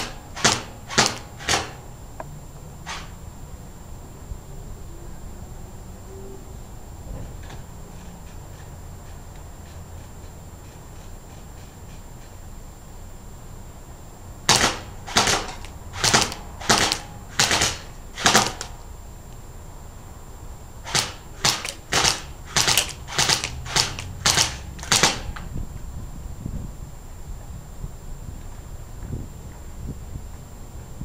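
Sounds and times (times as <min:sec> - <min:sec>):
airsoft gun firing: 0:00.0 - 0:01.8, 0:14.5 - 0:18.8, 0:20.8 - 0:25.4.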